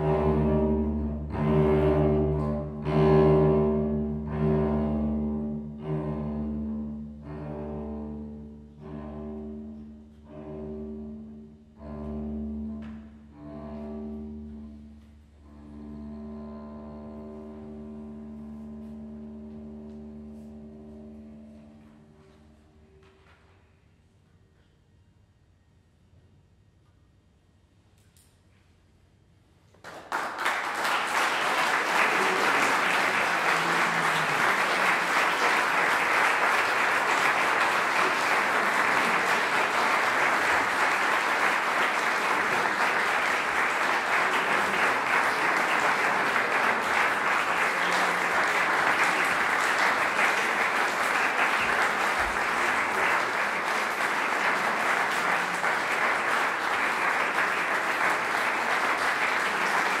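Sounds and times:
audience applauding: 0:29.8 - 1:00.0.

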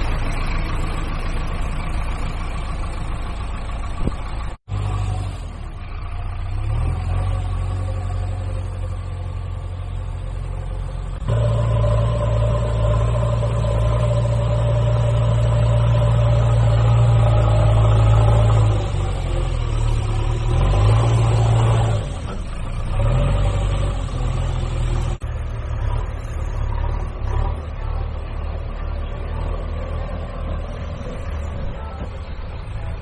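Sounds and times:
engine-like drone: 0:00.0 - 0:33.0.

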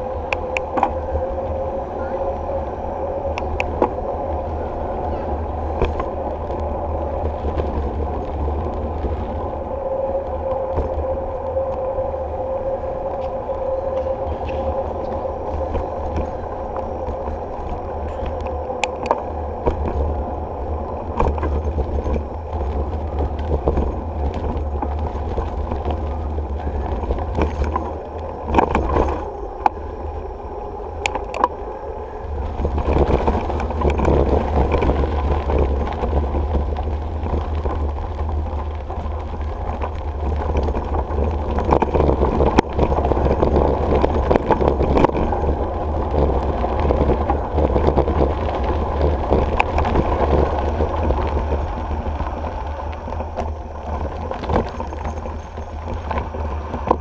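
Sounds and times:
bicycle tyre noise: 0:00.0 - 0:57.0
wind rumble on microphone: 0:00.0 - 0:57.0
bike knocks and rattles: 0:14.0 - 0:29.3.

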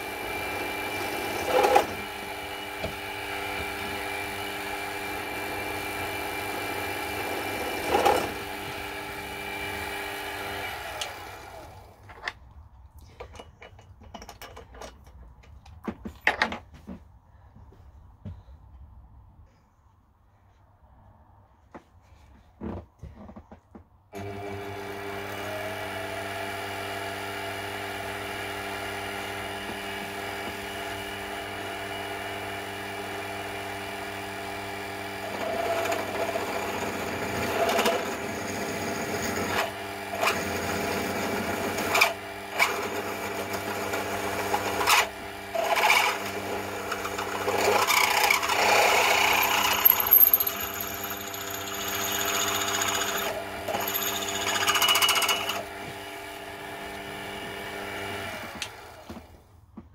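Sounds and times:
drill cutting into metal tube: 0:00.0 - 0:11.7, 0:34.7 - 0:55.9
mill motor running: 0:35.2 - 0:59.3.

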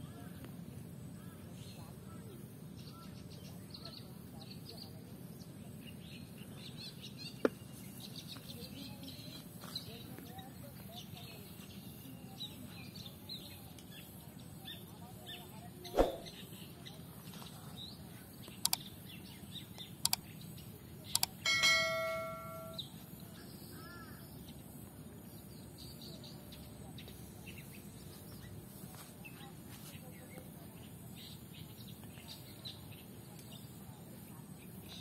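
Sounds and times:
small birds chirping: 0:00.0 - 0:35.0
steady outdoor hiss: 0:00.0 - 0:35.0
sharp clicks: 0:21.2 - 0:21.4
ringing electronic chime: 0:21.5 - 0:22.8.

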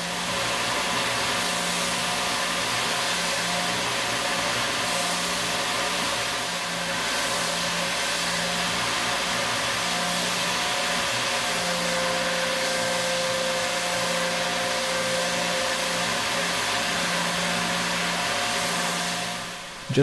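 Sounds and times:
milling machine cutting metal: 0:00.0 - 0:20.0
low machine hum: 0:09.6 - 0:20.0.

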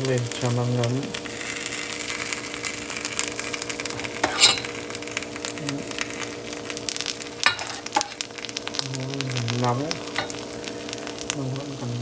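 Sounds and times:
fish sizzling and crackling: 0:00.0 - 0:12.0
steady low hum: 0:00.0 - 0:12.0
metal ladle clinking: 0:04.2 - 0:04.7, 0:07.5 - 0:08.1.

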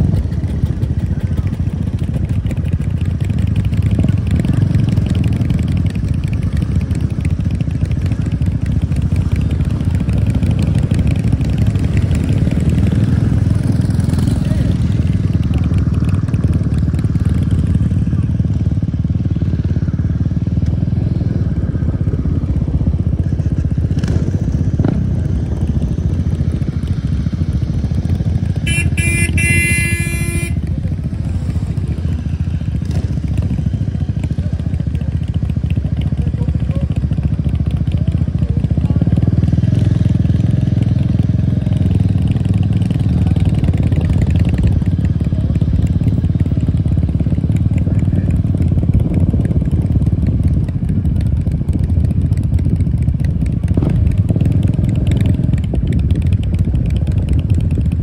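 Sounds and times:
motorcycle engine rumbling: 0:00.0 - 0:58.0
short high horn-like tone: 0:28.6 - 0:30.7.

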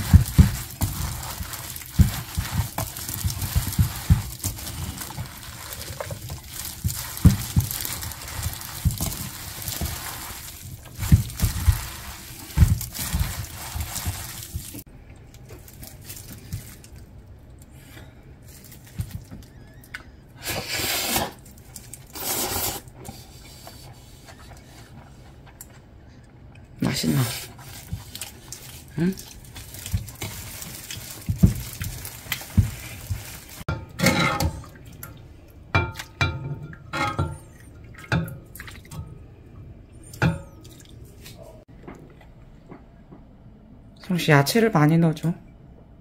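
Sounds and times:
short rustling: 0:00.0 - 0:14.9, 0:27.4 - 0:33.7
wet squelching of noodles mixed: 0:00.0 - 0:26.2, 0:26.8 - 0:33.7.

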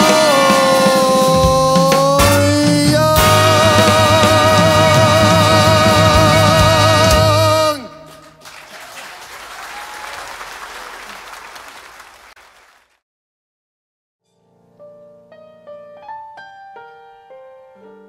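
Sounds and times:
person singing swing song with band: 0:00.0 - 0:08.1
piano playing: 0:00.0 - 0:08.1, 0:14.3 - 0:18.0
audience applause: 0:04.9 - 0:13.0.

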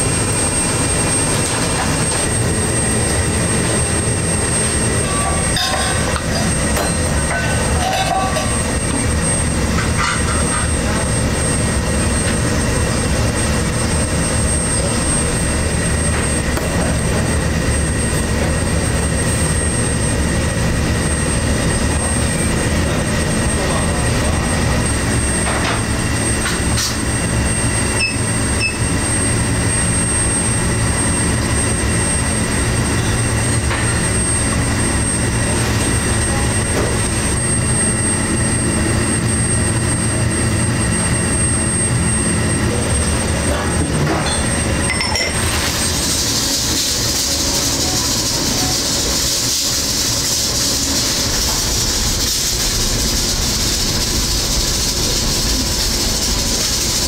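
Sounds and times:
kitchen equipment roaring: 0:00.0 - 0:57.0
loud steady hiss: 0:45.5 - 0:57.0.

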